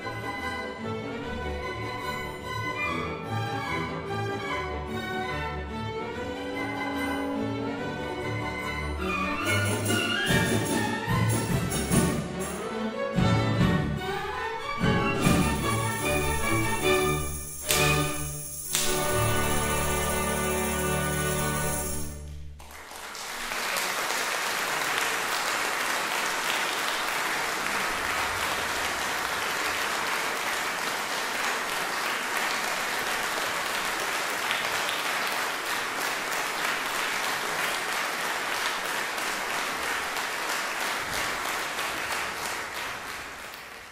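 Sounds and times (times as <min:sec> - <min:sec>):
audience applauding: 0:15.2 - 0:43.9.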